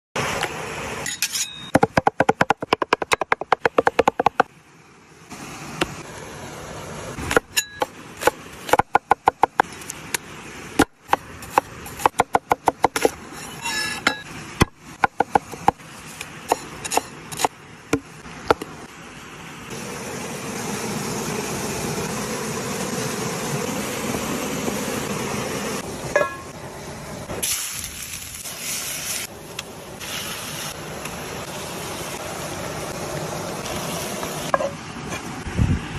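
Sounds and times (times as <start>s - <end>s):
cleaver chopping on wooden board: 1.8s - 4.5s, 7.3s - 9.7s, 10.8s - 13.2s, 14.6s - 15.8s
knife blade sharpening: 13.3s - 14.2s.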